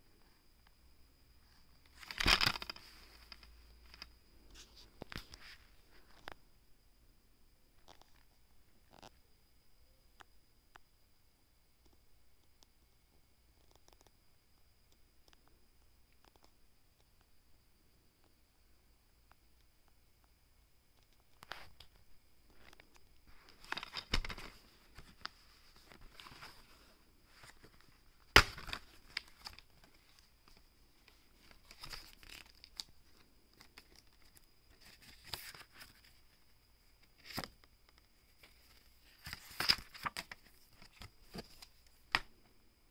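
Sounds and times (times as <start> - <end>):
paper rustling: 1.9 - 5.7, 22.6 - 36.3, 38.4 - 42.2.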